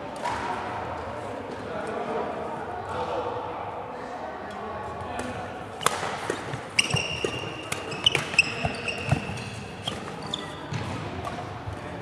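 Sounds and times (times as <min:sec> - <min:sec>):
rackets hitting shuttlecock: 0:05.2 - 0:11.8
shoes squeaking on floor: 0:05.8 - 0:10.9.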